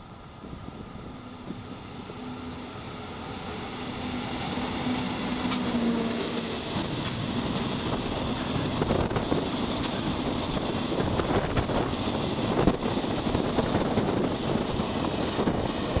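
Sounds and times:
freight train rushing past: 0:00.0 - 0:16.0
wind buffeting microphone: 0:06.6 - 0:16.0.

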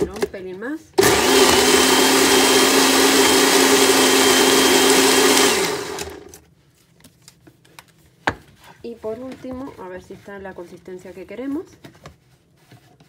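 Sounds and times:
electric blender running: 0:01.0 - 0:06.4.

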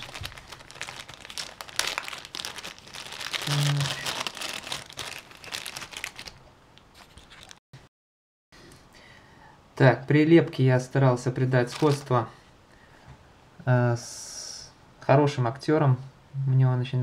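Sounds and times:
plastic bag crinkling and rustling: 0:00.0 - 0:07.6, 0:11.6 - 0:12.2.

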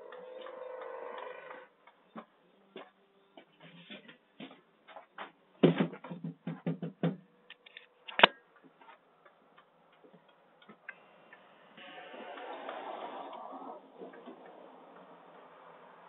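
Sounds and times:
footsteps: 0:02.2 - 0:06.7.

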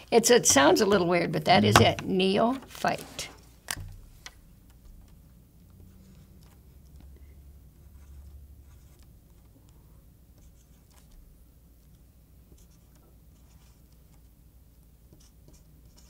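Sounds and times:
low room hum: 0:00.0 - 0:16.0
pen scratching on paper: 0:07.7 - 0:09.5, 0:10.3 - 0:11.2, 0:12.5 - 0:14.3, 0:15.0 - 0:16.0.

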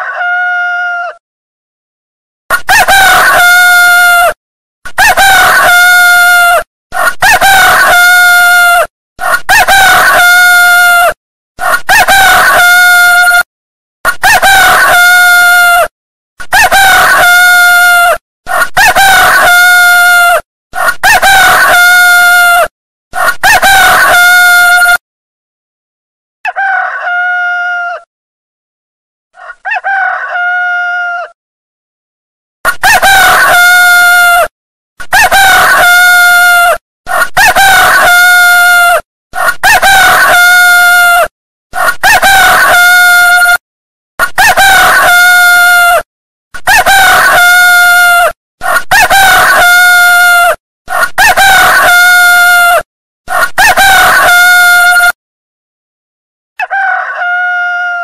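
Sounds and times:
rooster crowing: 0:00.0 - 0:01.2, 0:02.5 - 0:04.4, 0:05.0 - 0:13.4, 0:16.5 - 0:25.0, 0:26.5 - 0:28.1, 0:29.4 - 0:31.4, 0:32.8 - 0:34.5, 0:35.1 - 0:43.6, 0:44.4 - 0:46.0, 0:46.7 - 0:55.2, 0:56.6 - 0:58.0.

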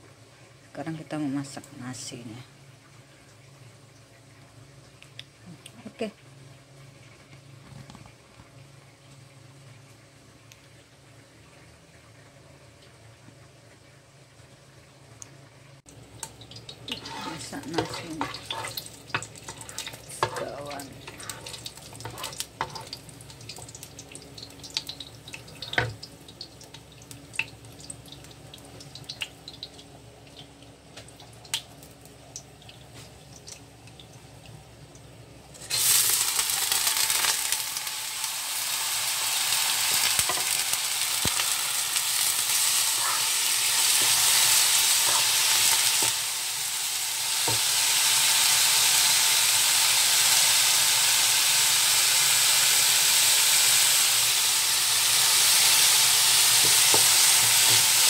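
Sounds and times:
rice sizzling in hot oil: 0:15.9 - 0:34.4, 0:35.5 - 0:58.0.

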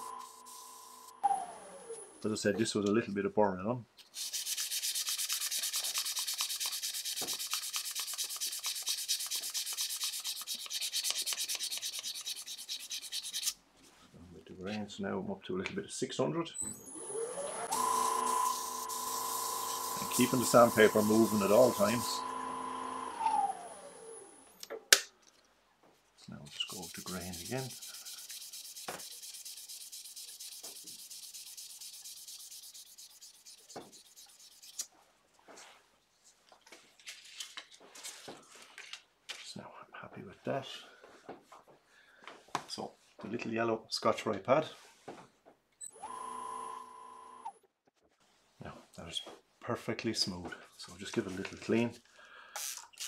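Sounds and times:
sandpaper scraping wood on lathe: 0:00.0 - 0:01.0, 0:04.0 - 0:13.6, 0:17.8 - 0:22.3, 0:26.6 - 0:34.9.

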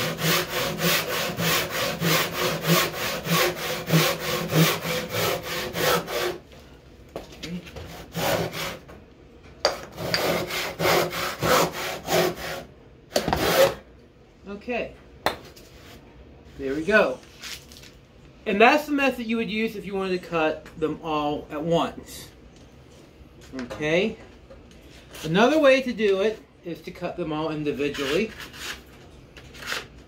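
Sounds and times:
hand saw cutting wood: 0:00.0 - 0:06.4, 0:07.8 - 0:08.8, 0:09.7 - 0:13.8, 0:27.8 - 0:28.8, 0:29.6 - 0:29.9.

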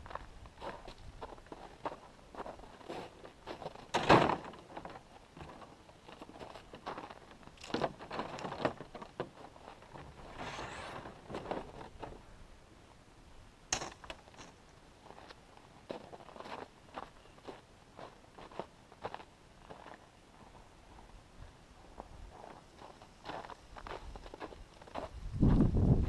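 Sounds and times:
knocks and scraping of gear: 0:02.8 - 0:12.2.

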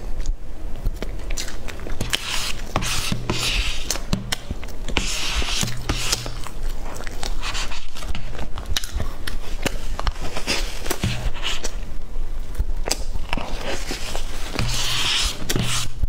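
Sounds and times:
mouth smacking while chewing: 0:00.1 - 0:02.1, 0:06.1 - 0:11.0.

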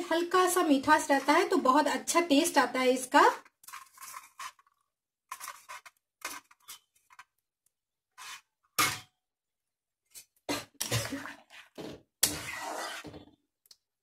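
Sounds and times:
spatula stirring simmering food: 0:03.3 - 0:07.4, 0:08.1 - 0:09.0, 0:10.2 - 0:13.9
utensil scraping and knocking pan: 0:03.6 - 0:04.7, 0:05.3 - 0:07.2, 0:10.5 - 0:13.3.

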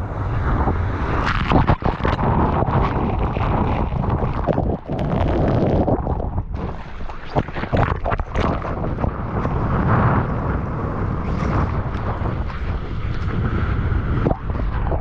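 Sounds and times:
rushing surf: 0:00.0 - 0:15.0
wind buffeting microphone: 0:00.0 - 0:15.0
water splashing on camera: 0:01.0 - 0:09.8.

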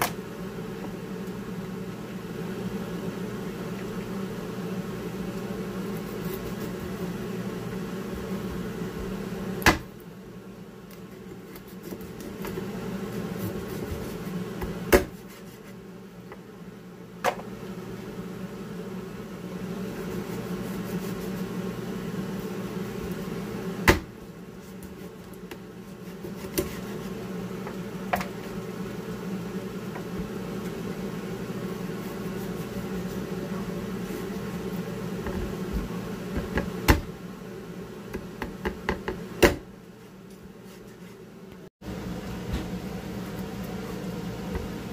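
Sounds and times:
steady low hum: 0:00.0 - 0:44.9
knife chopping on plastic board: 0:09.6 - 0:09.9, 0:14.9 - 0:15.2.

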